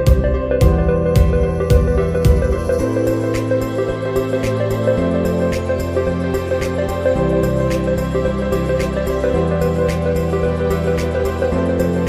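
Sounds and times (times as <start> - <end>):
light ticking beat: 0.0 - 3.8
soft new-age instrumental music: 0.0 - 12.0.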